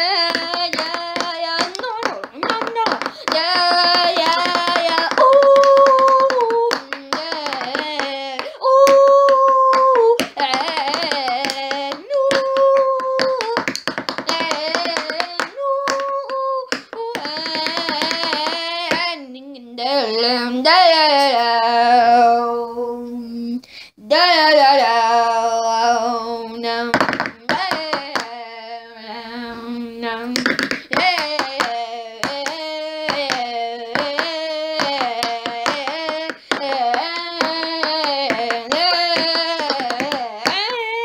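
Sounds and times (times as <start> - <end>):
hand percussion patter: 0.0 - 19.1, 26.9 - 28.4, 30.3 - 40.9
person singing without words: 0.0 - 41.0.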